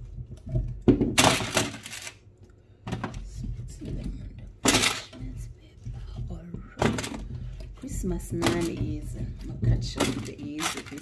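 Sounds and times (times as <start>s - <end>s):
baking paper rustling: 1.2s - 2.2s, 7.9s - 11.0s.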